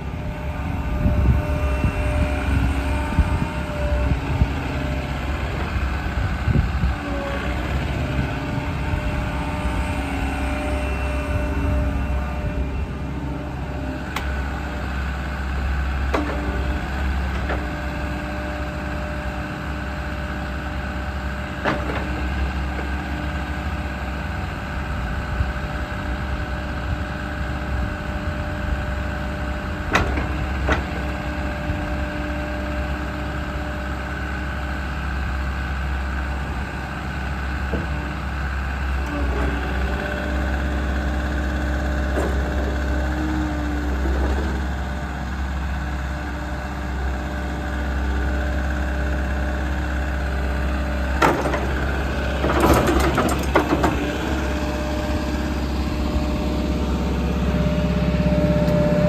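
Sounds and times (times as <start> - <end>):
excavator diesel engine running: 0.0 - 59.0
hydraulics whining: 0.0 - 59.0.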